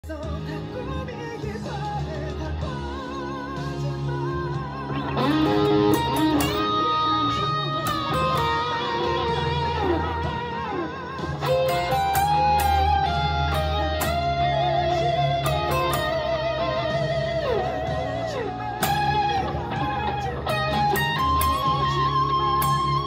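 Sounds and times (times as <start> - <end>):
electric lead guitar: 0.0 - 23.0.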